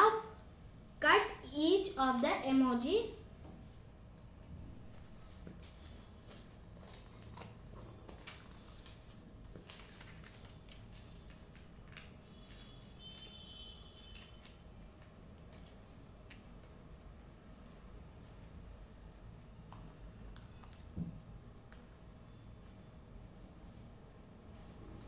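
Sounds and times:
paper rustling: 5.0s - 13.4s.

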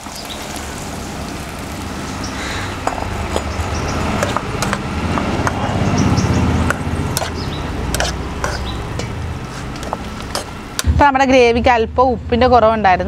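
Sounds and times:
low rumble: 10.8s - 12.4s.

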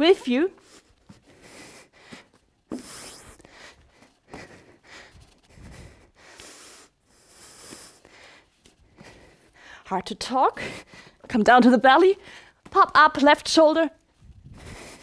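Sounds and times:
woman breathing hard: 0.7s - 9.9s, 10.6s - 11.3s, 12.2s - 12.6s, 14.5s - 15.0s.

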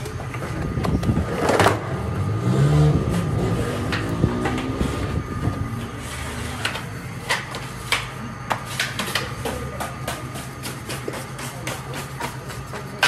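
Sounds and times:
bread oven humming: 0.0s - 13.0s.

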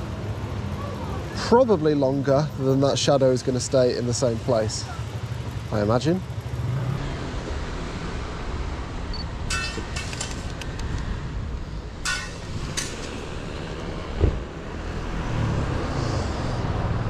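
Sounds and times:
dull thump: 14.1s - 14.5s.

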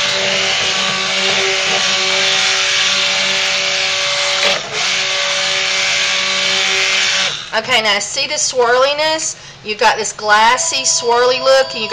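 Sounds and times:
stick blender running: 0.0s - 7.6s.

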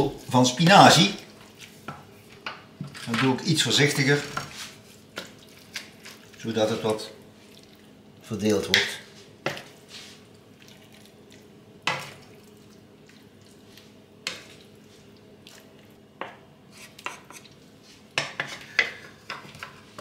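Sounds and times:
spatulas scraping a frying pan: 2.9s - 5.3s, 16.7s - 20.0s.

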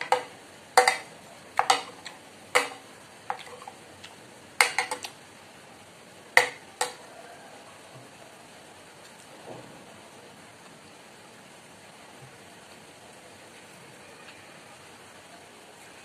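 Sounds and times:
cutlery clinking on a plate: 0.0s - 3.7s, 4.6s - 5.1s.

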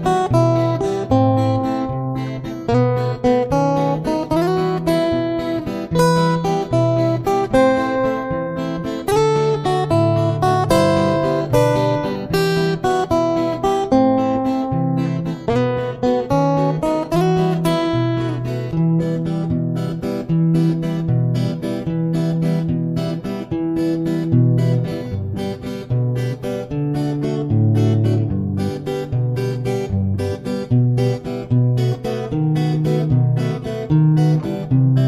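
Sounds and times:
acoustic guitar plucking: 0.0s - 35.0s.

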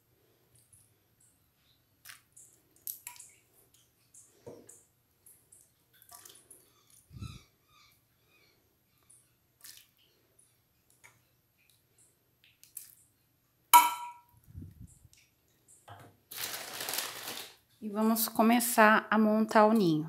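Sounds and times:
spoon clinking on pan: 13.8s - 14.2s
spoon scraping and tapping: 13.8s - 14.2s.

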